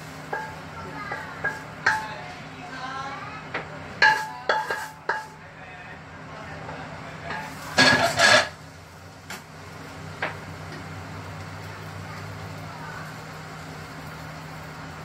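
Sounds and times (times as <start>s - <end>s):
metal wok knocking on grate: 0.3s - 2.3s, 3.5s - 5.4s, 7.2s - 8.6s, 10.2s - 10.9s.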